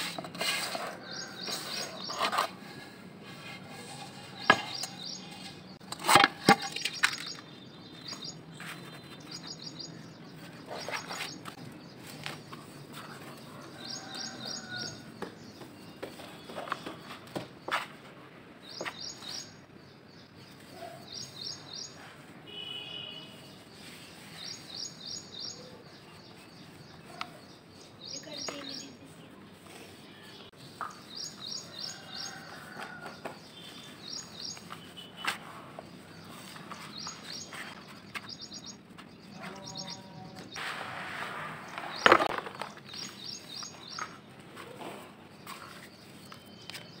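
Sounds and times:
bird chirping: 0:04.2 - 0:05.8, 0:06.7 - 0:17.3, 0:33.4 - 0:40.6, 0:41.7 - 0:44.3, 0:45.4 - 0:47.0.

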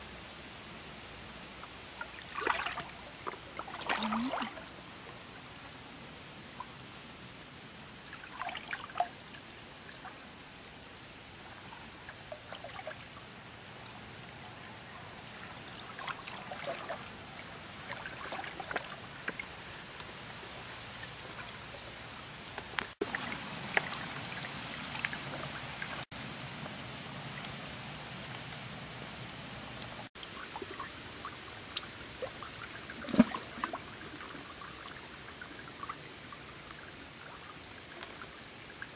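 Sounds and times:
faint steady hiss: 0:00.0 - 0:38.9
water sloshing and splashing: 0:01.7 - 0:05.3, 0:08.0 - 0:10.2, 0:11.4 - 0:26.1, 0:30.2 - 0:38.9.

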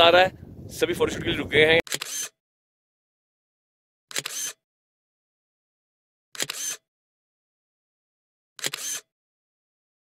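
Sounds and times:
camera shutter clicking: 0:01.9 - 0:02.4, 0:04.1 - 0:04.6, 0:06.3 - 0:06.8, 0:08.6 - 0:09.1.

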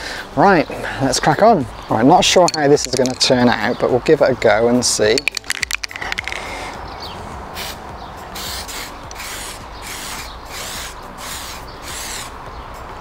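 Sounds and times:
aerosol spray paint hissing: 0:07.6 - 0:07.8, 0:08.4 - 0:12.3.

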